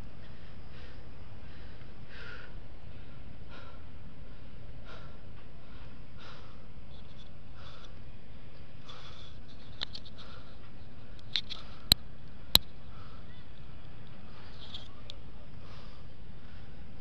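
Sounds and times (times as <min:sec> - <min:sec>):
heavy breathing: 0:00.2 - 0:08.2, 0:08.8 - 0:10.8, 0:12.8 - 0:13.5, 0:15.4 - 0:17.0.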